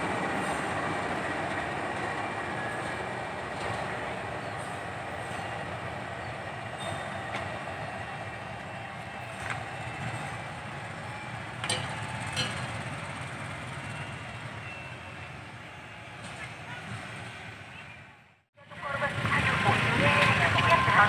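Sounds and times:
wheels clacking over rail joints: 0.0 - 14.8
locomotive engine and wheel rumble: 0.0 - 21.0.

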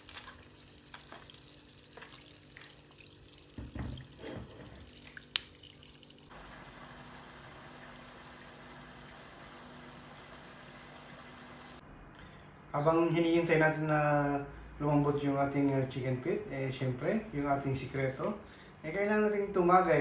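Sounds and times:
pot boiling hiss: 4.2 - 11.8.

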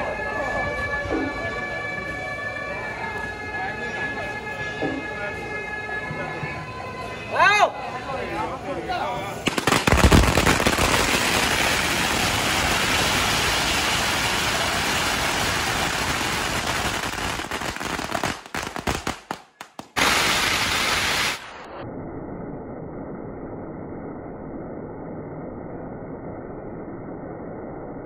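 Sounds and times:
firecrackers crackling: 9.3 - 21.8.

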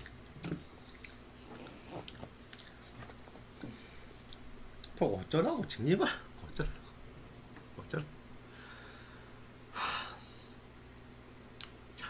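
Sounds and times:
man chewing food: 0.0 - 5.0
small mouth clicks: 11.6 - 11.8.

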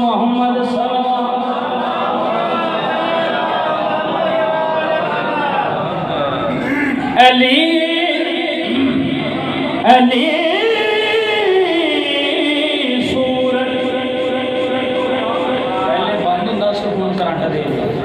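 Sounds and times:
man chanting through loudspeaker: 0.0 - 3.4, 4.5 - 18.0.

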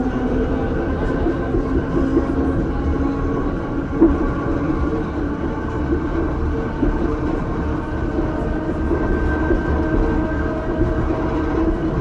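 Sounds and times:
wheels rumbling on rails: 0.0 - 12.0.

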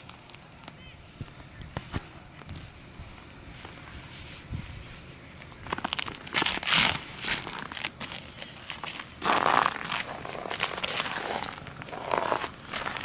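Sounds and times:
crunching in packed snow: 5.6 - 13.0.

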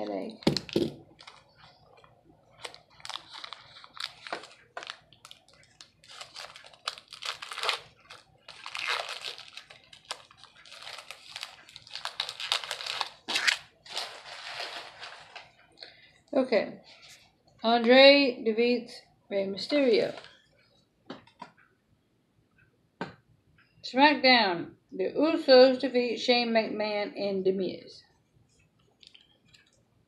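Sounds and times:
foil wrapper crinkling and tearing: 0.5 - 1.8, 2.5 - 15.5.

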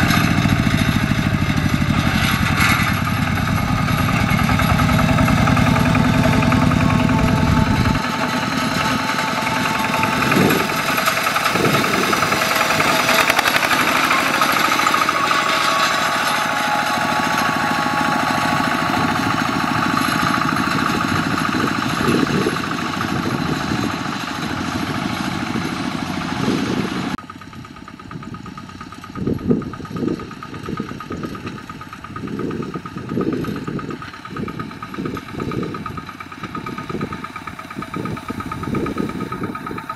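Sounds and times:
low engine thumps: 0.0 - 25.8
diesel tractor engine under load: 0.0 - 39.9.

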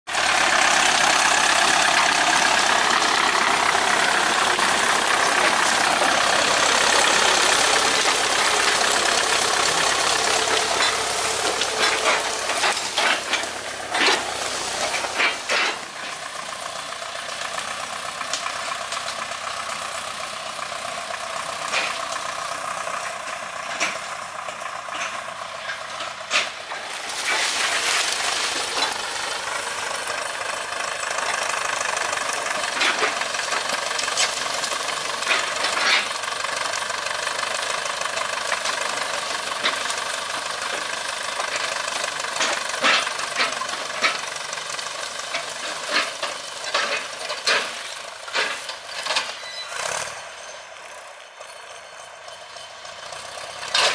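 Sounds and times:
tractor diesel engine running: 0.0 - 53.9
brush cracking: 0.2 - 19.3, 23.3 - 36.8.

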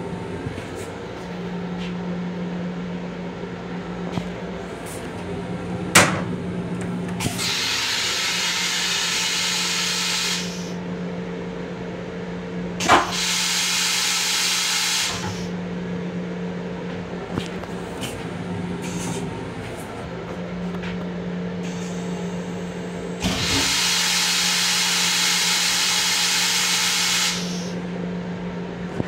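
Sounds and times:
steady hum: 0.0 - 12.9, 15.2 - 23.3
toilet flush rushing hiss: 7.2 - 10.8, 12.8 - 15.6, 21.6 - 27.8.

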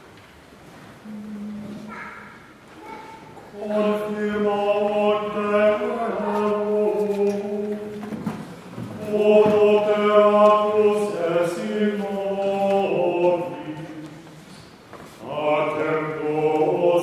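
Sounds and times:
voices chanting plainchant: 1.0 - 17.0.

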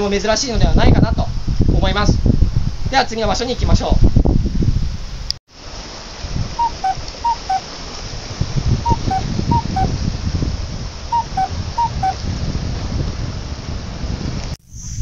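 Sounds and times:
wind: 0.0 - 15.0
sea waves on rocky shore: 5.5 - 14.2.

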